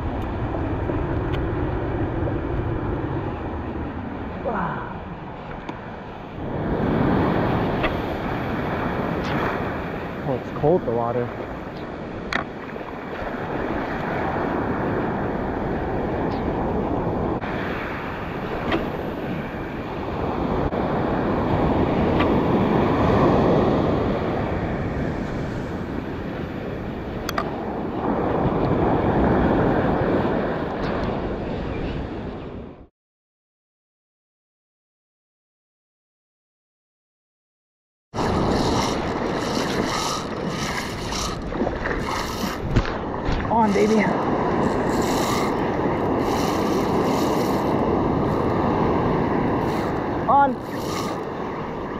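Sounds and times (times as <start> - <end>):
surf breaking on rocks: 38.2 - 51.9
wind buffeting microphone: 38.2 - 51.9.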